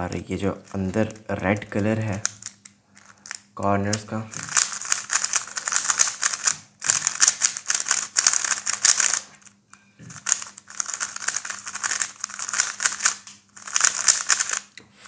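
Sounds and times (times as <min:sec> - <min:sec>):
plastic puzzle cube clicking: 0:02.2 - 0:09.4, 0:10.1 - 0:14.7.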